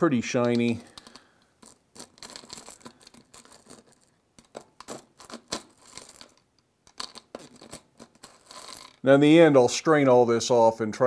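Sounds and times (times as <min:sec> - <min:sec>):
metal tool clinking screws in jar: 0:00.4 - 0:09.0.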